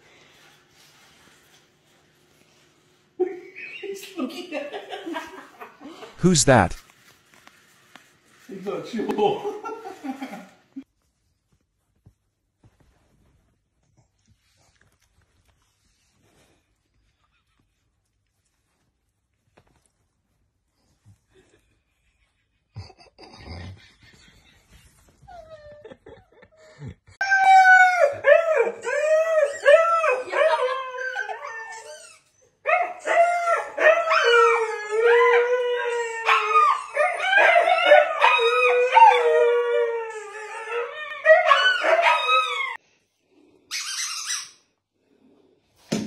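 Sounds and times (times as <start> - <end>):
dog howling: 27.2 - 31.8, 32.7 - 42.8.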